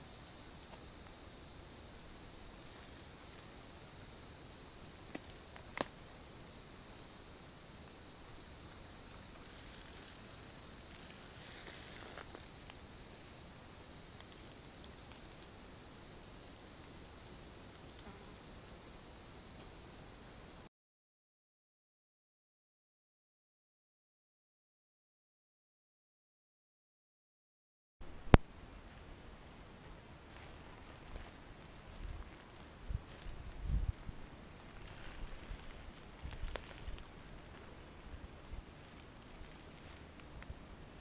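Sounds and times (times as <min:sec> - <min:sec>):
high-pitched insect chorus: 0:00.0 - 0:20.7, 0:30.0 - 0:41.0.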